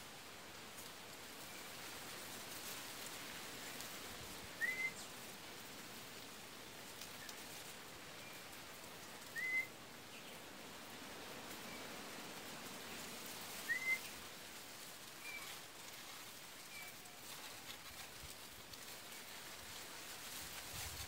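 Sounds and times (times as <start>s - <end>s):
background hiss: 0.0s - 21.0s
bird whistling: 4.6s - 5.0s, 9.4s - 9.7s, 13.7s - 14.1s.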